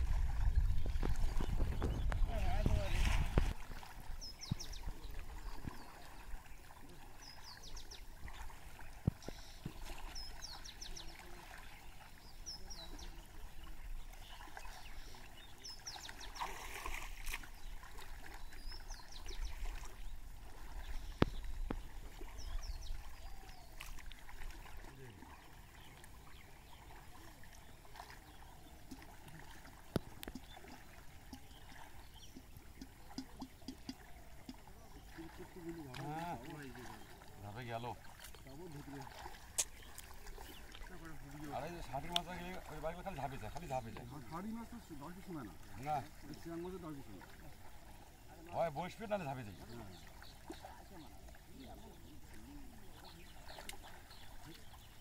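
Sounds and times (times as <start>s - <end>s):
water splash: 0.0s - 13.0s, 13.6s - 25.4s, 26.9s - 47.7s, 49.6s - 55.0s
water sloshing around legs: 0.0s - 55.0s.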